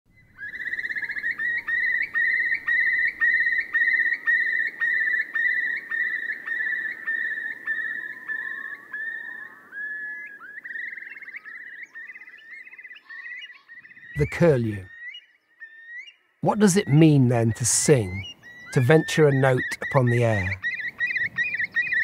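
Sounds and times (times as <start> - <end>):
curlew bubbling trill: 16.4 - 22.0.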